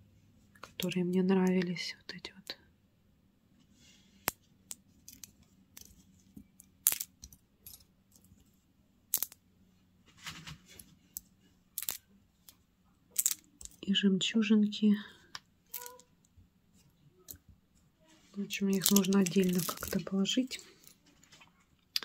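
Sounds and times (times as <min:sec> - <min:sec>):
beads clicking together: 0:06.6 - 0:08.3, 0:09.1 - 0:09.4, 0:11.1 - 0:13.8, 0:15.7 - 0:16.1, 0:18.7 - 0:20.0.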